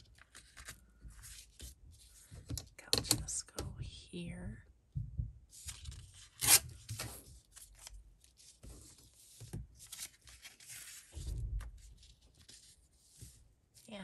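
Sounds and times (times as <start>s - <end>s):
paper rustling and crinkling: 0.0s - 2.5s, 5.6s - 13.9s.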